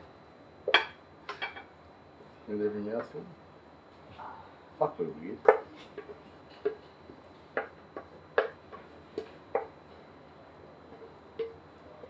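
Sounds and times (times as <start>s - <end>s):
utensil tapping pan and bowl: 7.6s - 9.8s.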